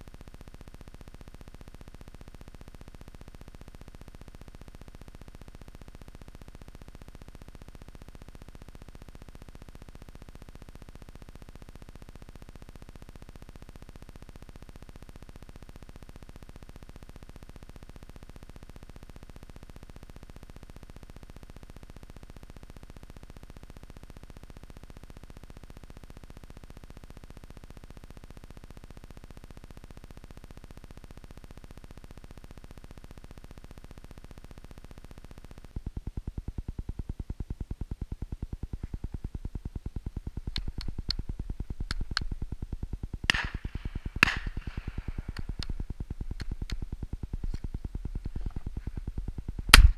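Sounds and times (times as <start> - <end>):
electronic static hiss: 0.0 - 49.9
low hum: 30.5 - 49.9.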